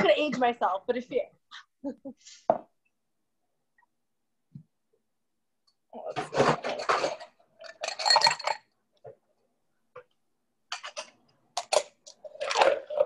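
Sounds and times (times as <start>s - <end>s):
ice rattling in cocktail shaker: 6.6s - 8.7s, 11.7s - 13.0s.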